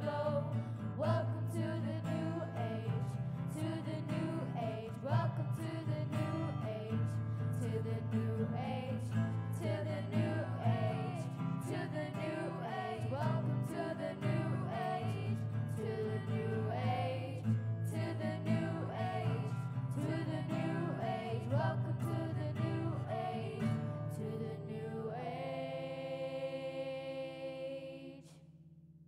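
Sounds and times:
voices singing: 0:00.0 - 0:28.4
acoustic guitar: 0:00.0 - 0:28.8.

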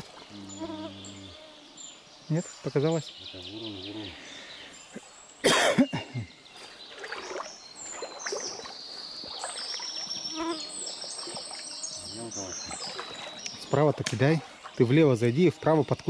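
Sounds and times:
river trickling: 0:06.4 - 0:15.7.

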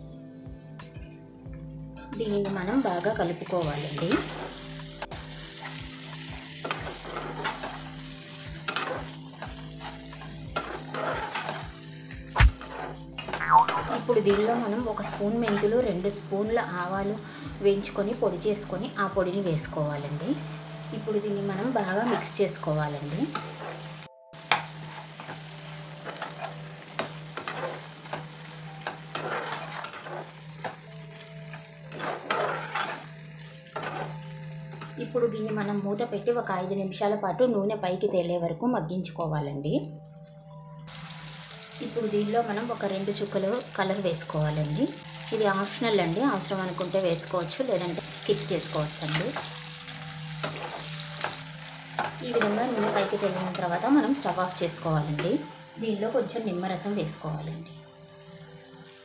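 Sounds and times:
food sizzling in oil: 0:02.3 - 0:35.1, 0:40.8 - 0:59.0
spatula scraping pan: 0:08.6 - 0:11.8, 0:12.5 - 0:15.7, 0:21.8 - 0:22.4, 0:26.0 - 0:30.8, 0:31.9 - 0:34.2, 0:50.4 - 0:51.4, 0:52.0 - 0:53.6.

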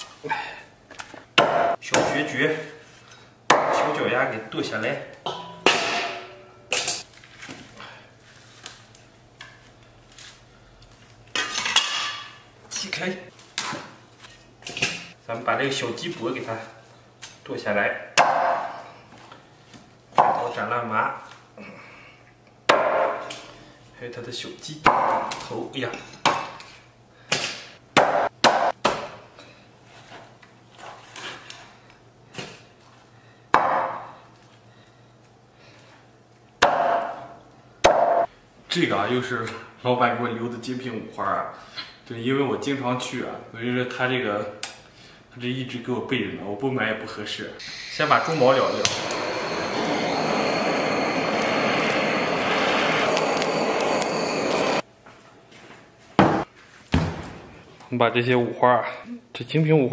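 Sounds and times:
butane torch burning: 0:47.6 - 0:54.9.

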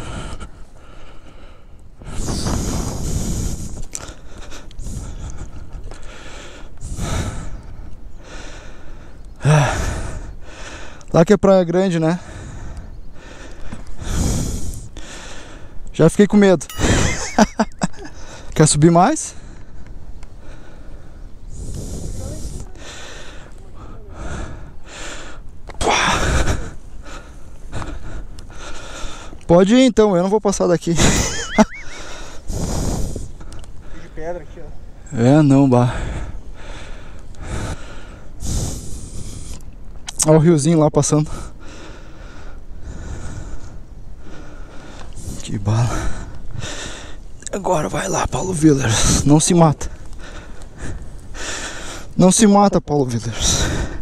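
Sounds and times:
person breathing hard: 0:00.0 - 0:11.1, 0:12.2 - 0:15.8, 0:20.4 - 0:29.4, 0:31.8 - 0:34.2, 0:35.9 - 0:39.7, 0:41.3 - 0:47.2, 0:49.8 - 0:52.2, 0:53.3 - 0:54.0.

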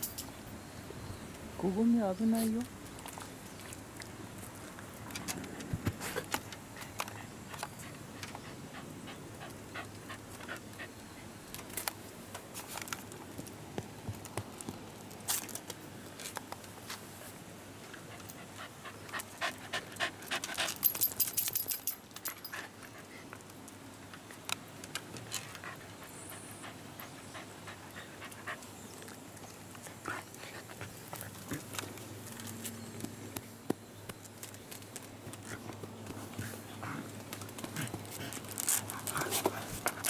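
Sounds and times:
dog panting: 0:06.8 - 0:11.0, 0:18.0 - 0:20.9, 0:25.5 - 0:31.8.

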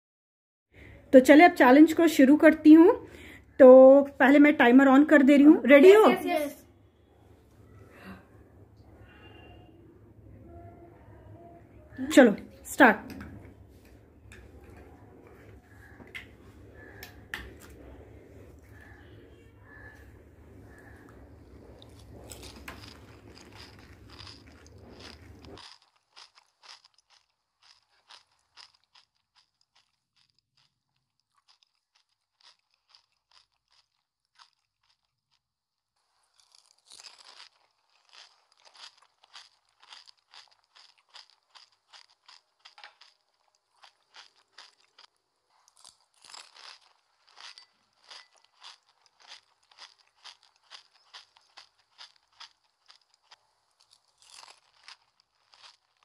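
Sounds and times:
crisp shells crunching: 0:20.7 - 0:56.0.

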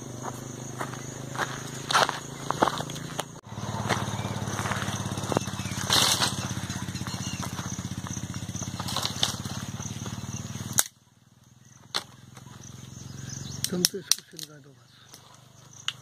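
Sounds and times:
motorcycle engine running: 0:00.0 - 0:13.8.

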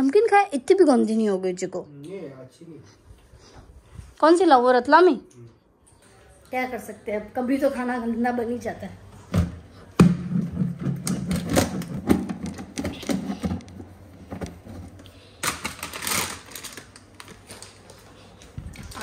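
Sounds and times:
snack packet crinkling: 0:15.4 - 0:19.0.

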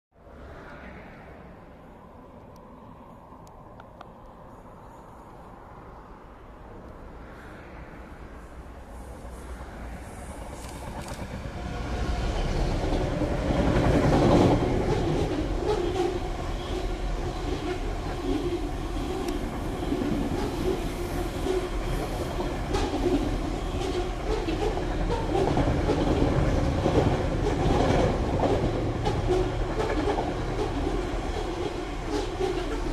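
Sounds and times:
diesel locomotive engine: 0:03.3 - 0:32.9
wheels clacking over rails: 0:10.4 - 0:32.9.

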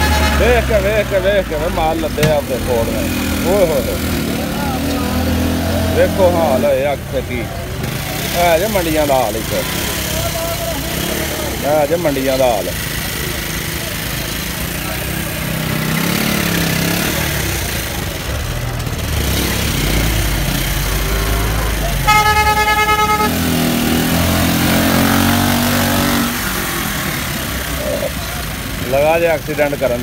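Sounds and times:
vehicle horn blast: 0:00.0 - 0:00.8, 0:22.0 - 0:23.8
vehicle engines running: 0:00.0 - 0:30.0.

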